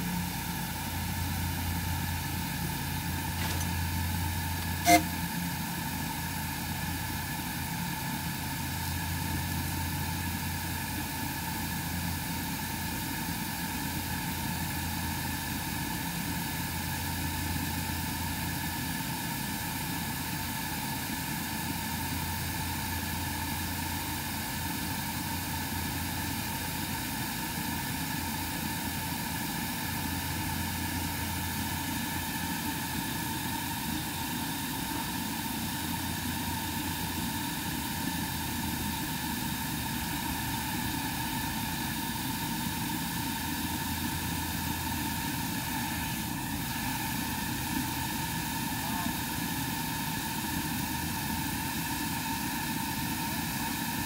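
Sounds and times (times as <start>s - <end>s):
oil burner rushing: 0.0s - 54.0s
steady high tones: 4.6s - 5.1s.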